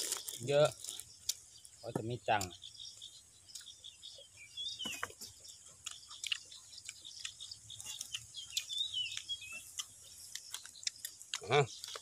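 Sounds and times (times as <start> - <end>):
small clicks and crunches: 0.0 - 1.4, 4.9 - 12.0
bird chirping: 0.0 - 12.0
people chewing and eating: 0.0 - 12.0.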